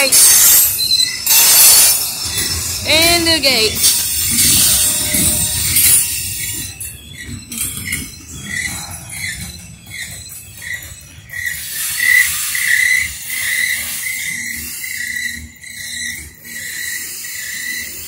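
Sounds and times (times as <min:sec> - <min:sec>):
crossing bell ringing: 0:00.0 - 0:13.3
freight train cars rumbling: 0:00.0 - 0:18.0.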